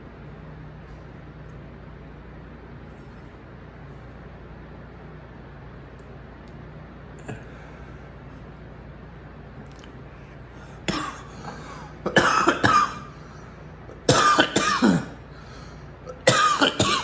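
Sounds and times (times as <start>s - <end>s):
man coughing: 10.8s - 13.2s, 14.0s - 15.2s, 16.1s - 17.0s.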